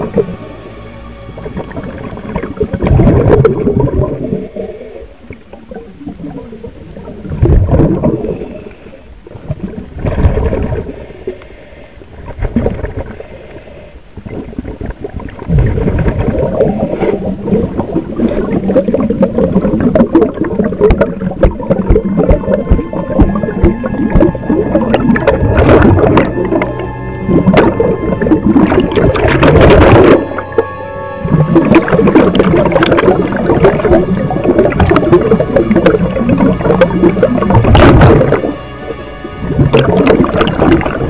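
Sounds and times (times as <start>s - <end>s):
diver exhaling bubbles underwater: 1.4s - 11.1s, 14.2s - 38.6s, 39.4s - 41.0s.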